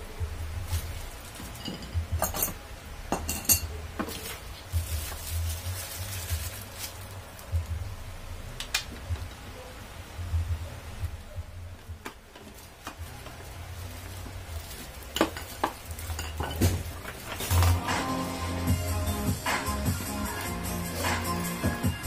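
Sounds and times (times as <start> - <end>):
plastic wrap crinkling: 0.6 - 2.3, 4.0 - 7.7, 12.1 - 17.9.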